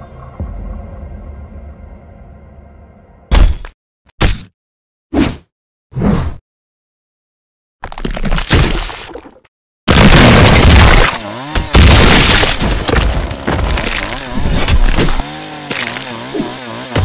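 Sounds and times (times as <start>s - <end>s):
chainsaw engine revving: 10.5s - 17.0s.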